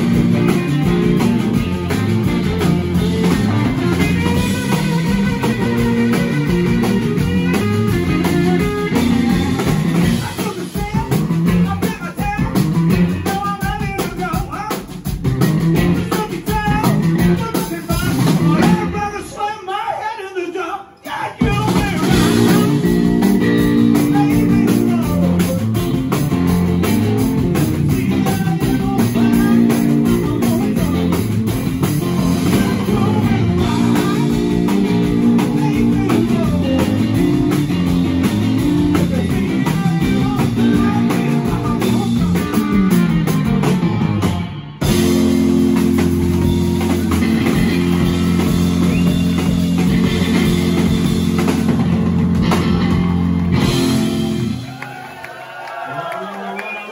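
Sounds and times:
drum kit: 0:00.0 - 0:19.4, 0:21.0 - 0:55.9
electric guitars: 0:00.0 - 0:19.4, 0:20.9 - 0:55.4
man singing: 0:03.9 - 0:15.1, 0:15.8 - 0:25.8, 0:26.8 - 0:43.0.

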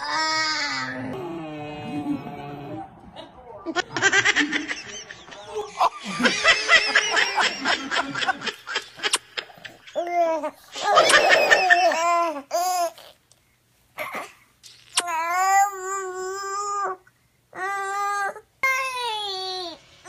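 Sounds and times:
baby laughing: 0:03.7 - 0:13.1.

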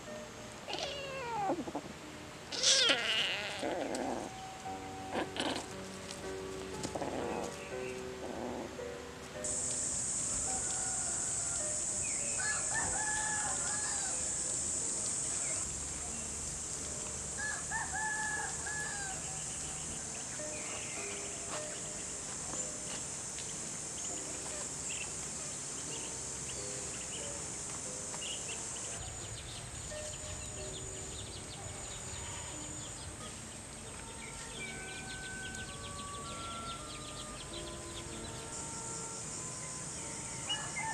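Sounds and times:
high-pitched insect drone: 0:09.4 - 0:40.9
rooster crowing: 0:10.3 - 0:14.4, 0:17.4 - 0:19.4, 0:38.6 - 0:40.9.

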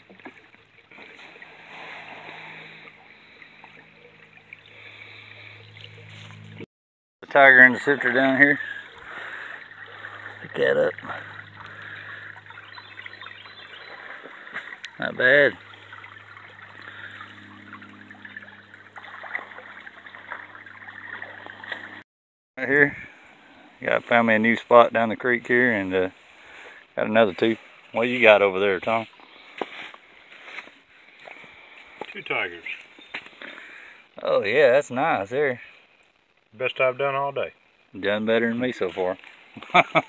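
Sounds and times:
creek water trickling: 0:00.0 - 0:22.0, 0:22.7 - 0:40.0
low steady hum: 0:07.3 - 0:22.0.

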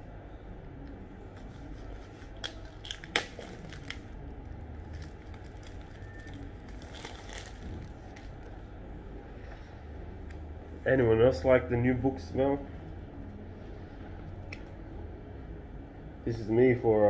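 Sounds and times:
plastic wrapping tearing and crinkling: 0:01.4 - 0:08.6.

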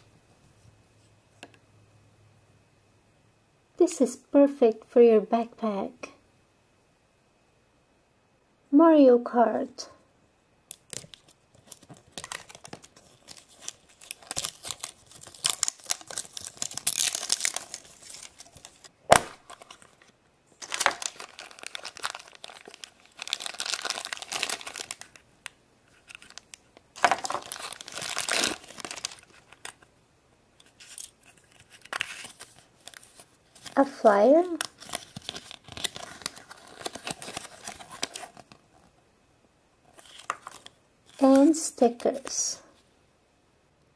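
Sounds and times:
plastic wrapping crinkling and tearing: 0:10.7 - 0:29.9, 0:30.6 - 0:38.6, 0:39.9 - 0:41.6.

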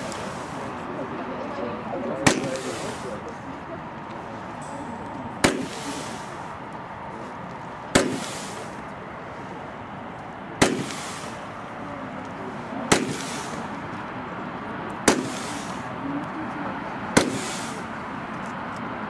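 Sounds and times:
firework hiss: 0:00.0 - 0:00.8, 0:02.2 - 0:03.4, 0:05.4 - 0:09.7, 0:10.6 - 0:11.8, 0:12.6 - 0:14.1, 0:15.0 - 0:16.1, 0:17.1 - 0:18.2
firework launch bangs: 0:02.2 - 0:03.1, 0:05.4 - 0:06.4, 0:07.9 - 0:08.8, 0:10.6 - 0:11.4, 0:12.9 - 0:13.7, 0:15.0 - 0:15.9, 0:17.1 - 0:17.9.

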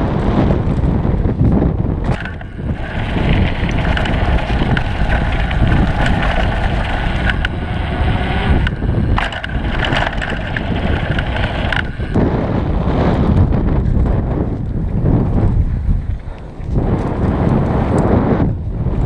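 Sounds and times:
bike clicks and rattles: 0:00.0 - 0:12.4, 0:13.2 - 0:19.0
wind buffeting microphone: 0:00.0 - 0:19.0
tyres on packed dirt: 0:02.0 - 0:12.4.

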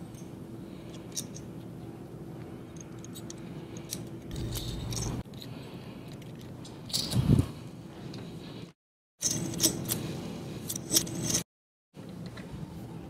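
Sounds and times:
steady low hum: 0:00.0 - 0:11.4
metallic clicks of nuts and washers: 0:00.1 - 0:01.5, 0:02.7 - 0:05.5, 0:06.1 - 0:07.2.

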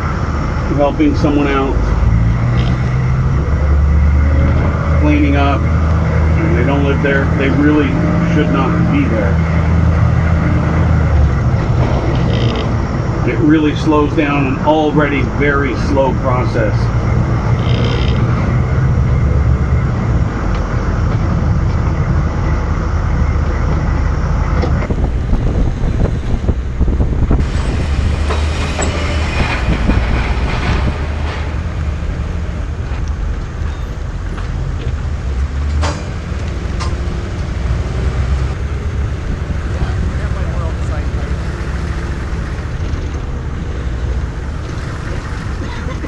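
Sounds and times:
diesel engine rumble: 0:00.0 - 0:46.0
road noise: 0:00.0 - 0:46.0
knocks and rattles: 0:09.4 - 0:13.2, 0:24.5 - 0:37.1.

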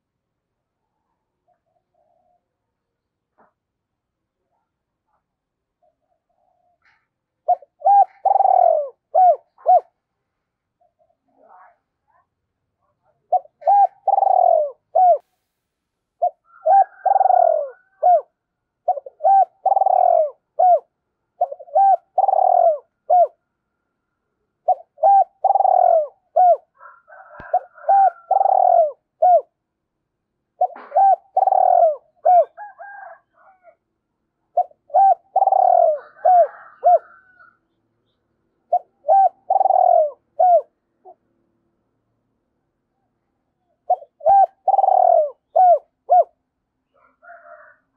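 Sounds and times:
dove cooing: 0:01.5 - 0:02.7, 0:05.8 - 0:10.0, 0:13.1 - 0:15.3, 0:16.2 - 0:23.4, 0:24.6 - 0:29.6, 0:30.5 - 0:33.8, 0:34.5 - 0:41.2, 0:43.6 - 0:47.8.

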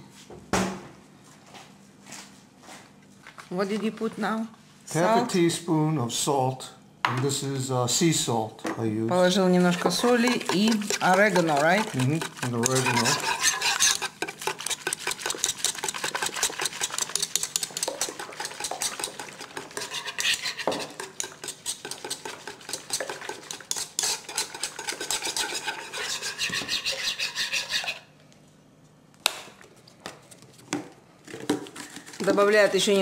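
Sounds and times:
utensil stirring clinking a pot: 0:09.4 - 0:28.0.

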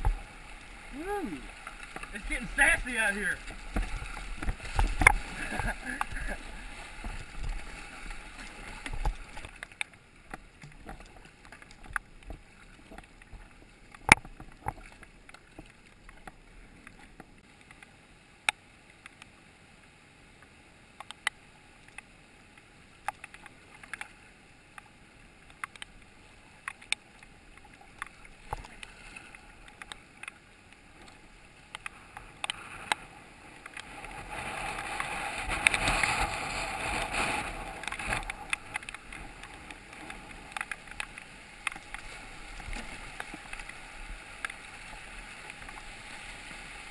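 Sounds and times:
paddle knocks and splashes: 0:00.0 - 0:00.3, 0:00.9 - 0:09.8
water rushing over rocks: 0:00.0 - 0:19.6, 0:20.2 - 0:46.9.

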